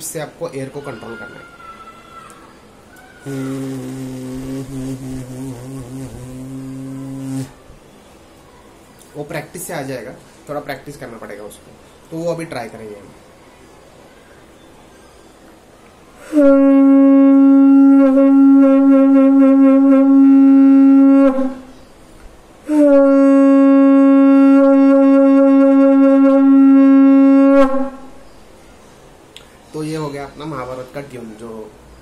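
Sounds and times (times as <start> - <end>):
conch shell blasts: 3.2 - 7.6, 16.3 - 21.8, 22.7 - 28.2.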